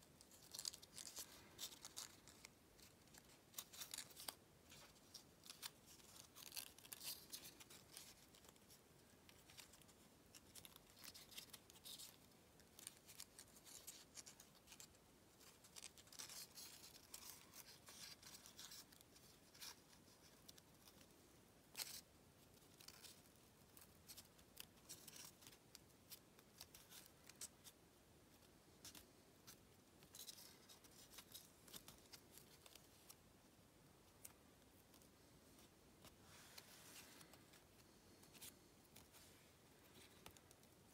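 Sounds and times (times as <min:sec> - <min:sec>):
paper rustling and crinkling: 0:00.2 - 0:21.1, 0:34.1 - 0:40.9.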